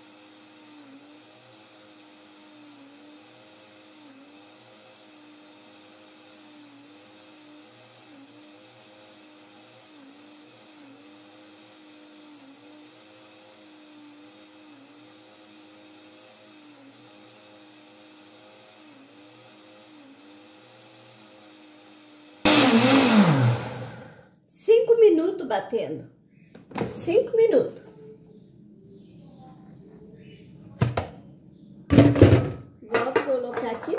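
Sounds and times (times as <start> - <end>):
blender motor running: 0.0 - 24.3
blender motor spinning down: 0.0 - 24.3.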